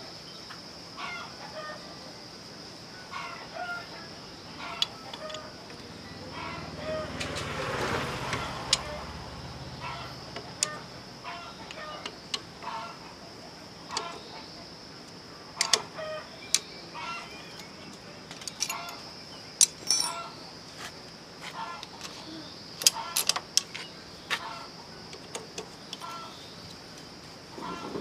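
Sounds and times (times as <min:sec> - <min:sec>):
hand tools clinking on metal: 0:18.3 - 0:19.0, 0:19.6 - 0:20.3
chickens clucking: 0:27.6 - 0:28.0.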